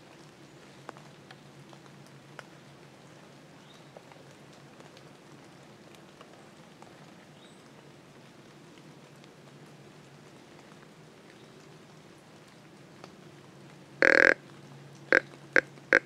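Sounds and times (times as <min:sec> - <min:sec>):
faint ticks and taps: 0:00.2 - 0:02.5, 0:03.9 - 0:07.8.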